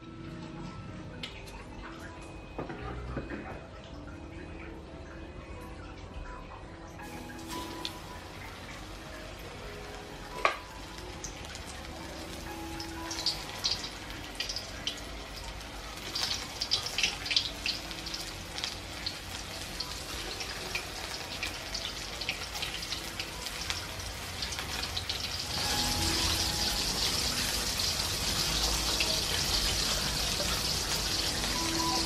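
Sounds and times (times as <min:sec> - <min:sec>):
chicken sizzling in hot oil: 0:07.0 - 0:32.0.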